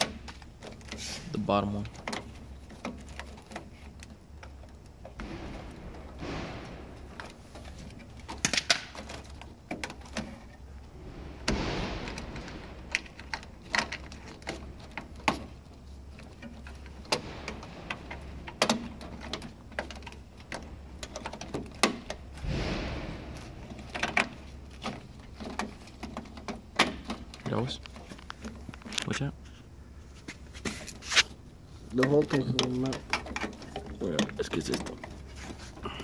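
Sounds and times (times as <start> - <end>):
clicks and knocks of parts: 0.0 - 29.6, 30.2 - 36.0
rustling scrapes: 0.8 - 1.4, 22.3 - 26.0, 29.5 - 31.9, 35.1 - 35.8.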